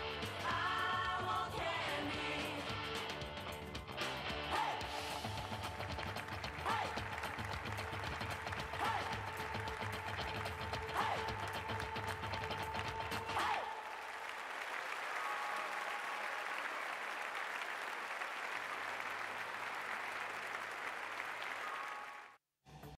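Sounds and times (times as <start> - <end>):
audience applauding: 5.0 - 22.4.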